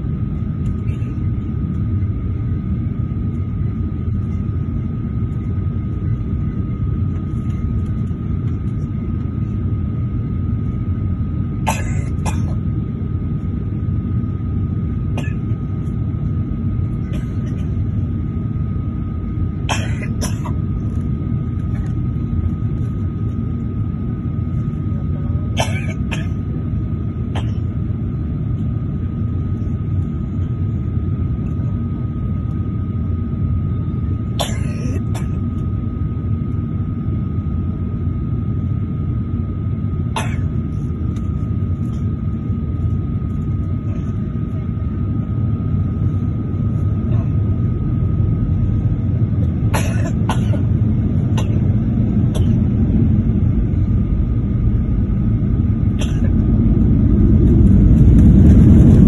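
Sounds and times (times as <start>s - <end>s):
airliner cabin rumble: 0.0s - 59.0s
high whine: 46.6s - 59.0s.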